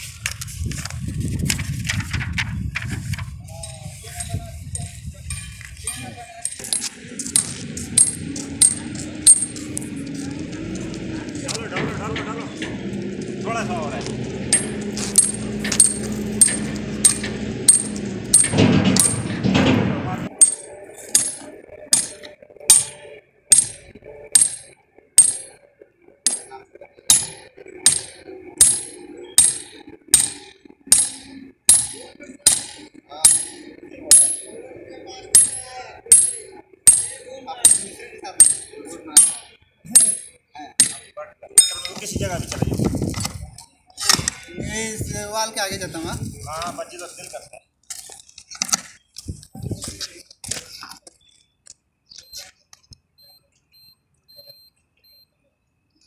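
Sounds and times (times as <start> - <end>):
hammer clanging on steel pin: 6.5 - 9.6, 14.5 - 25.6, 26.3 - 34.5, 35.3 - 42.1.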